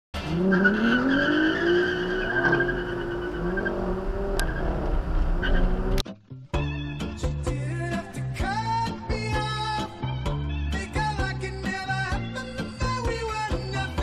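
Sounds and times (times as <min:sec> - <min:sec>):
car engine revving hard: 0:00.2 - 0:06.0
tires squealing: 0:00.2 - 0:06.0.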